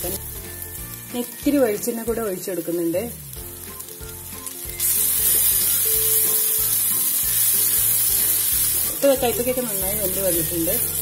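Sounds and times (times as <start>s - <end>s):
food sizzling in oil: 0.0s - 11.0s
food being stirred in pan: 3.3s - 11.0s.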